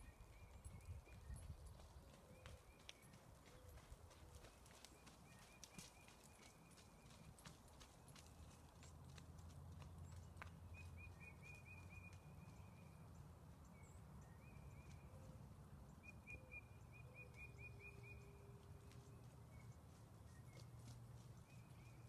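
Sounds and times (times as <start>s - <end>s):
wind rumble on microphone: 0.0s - 2.6s.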